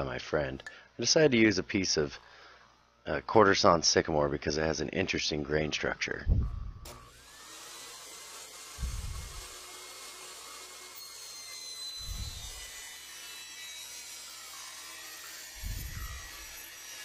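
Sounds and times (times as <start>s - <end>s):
table saw cutting wood: 6.8s - 17.0s.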